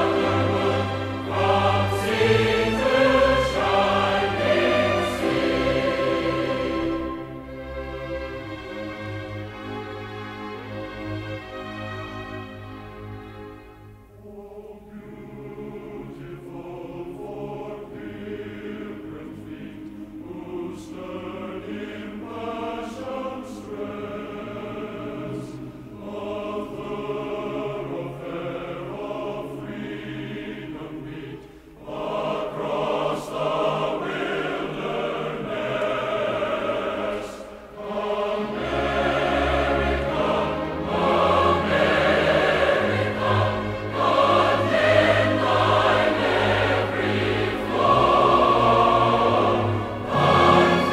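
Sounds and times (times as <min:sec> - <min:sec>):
orchestral accompaniment: 0:00.0 - 0:14.5, 0:15.1 - 0:50.9
choir singing sustained notes: 0:00.0 - 0:50.9.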